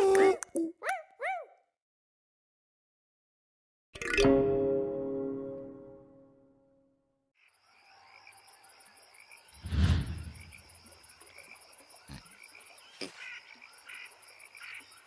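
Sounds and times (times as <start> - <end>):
frogs croaking: 7.4 - 15.0
high insect trill: 7.4 - 15.0.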